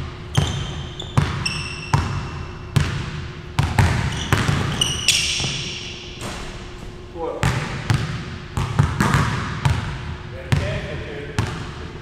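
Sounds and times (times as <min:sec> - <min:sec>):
sneakers squeaking: 0:00.0 - 0:10.8
basketball bouncing on wooden floor: 0:00.3 - 0:06.5, 0:07.4 - 0:10.8.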